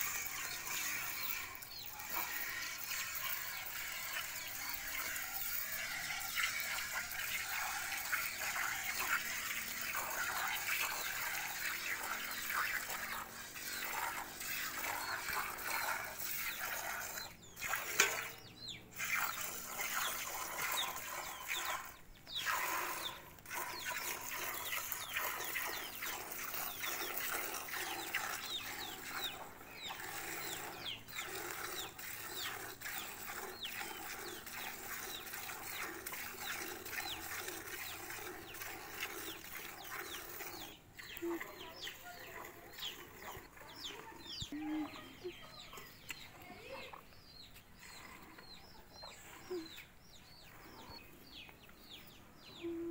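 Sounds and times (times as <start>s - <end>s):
milk squirting into steel bucket: 0.0s - 44.2s.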